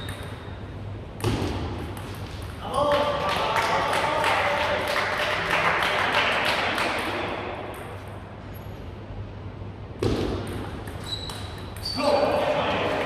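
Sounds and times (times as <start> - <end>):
table tennis ball bouncing: 0.0 - 0.5, 1.2 - 2.6, 10.0 - 11.9.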